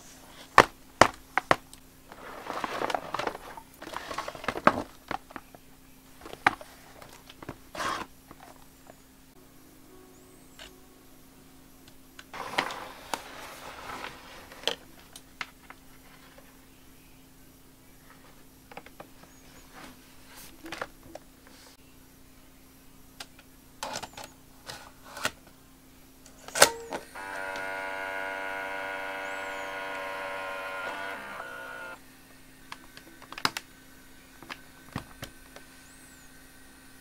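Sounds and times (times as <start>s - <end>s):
camcorder motor whine: 26.9s - 32.0s.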